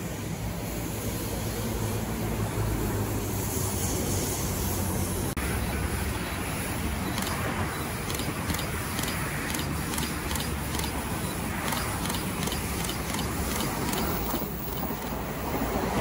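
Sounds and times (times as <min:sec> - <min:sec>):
electric train approaching: 0:00.0 - 0:16.0
road traffic rumble: 0:00.0 - 0:16.0
light regular ticking: 0:07.1 - 0:15.2.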